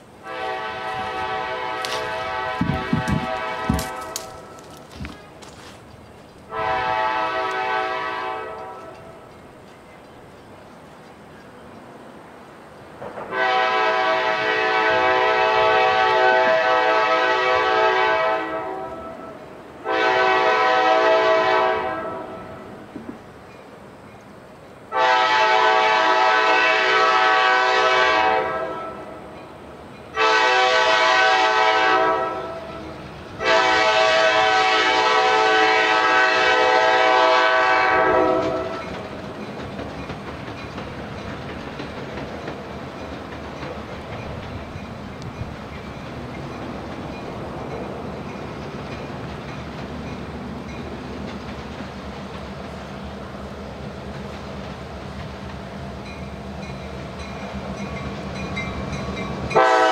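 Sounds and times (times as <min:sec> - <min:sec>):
train rumbling: 0:00.0 - 0:59.9
locomotive horn blasts: 0:00.2 - 0:05.6, 0:06.5 - 0:09.2, 0:13.3 - 0:22.8, 0:24.9 - 0:29.2, 0:30.1 - 0:38.9, 0:59.5 - 0:59.9.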